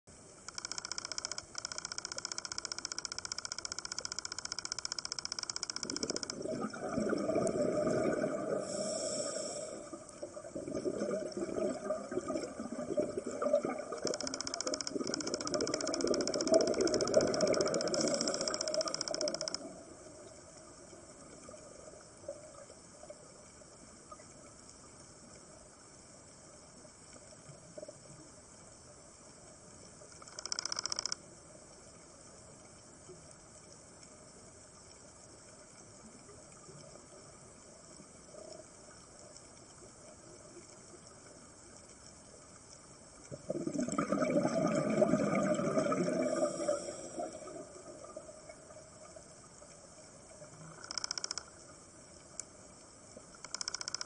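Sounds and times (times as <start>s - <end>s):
faint reef crackle: 0.1s - 54.0s
bubbling exhales: 6.4s - 14.1s, 43.4s - 48.3s
regulator inhale hiss: 8.5s - 10.2s, 46.3s - 47.4s.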